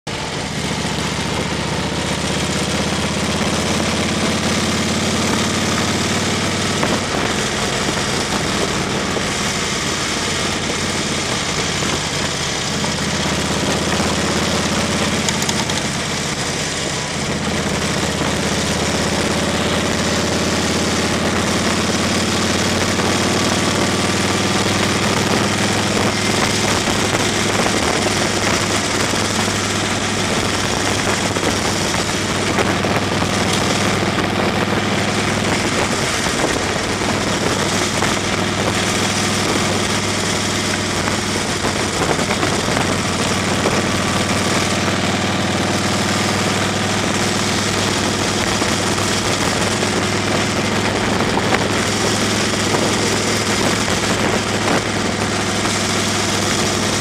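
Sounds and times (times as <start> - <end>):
car engine running: 0.0 - 57.0.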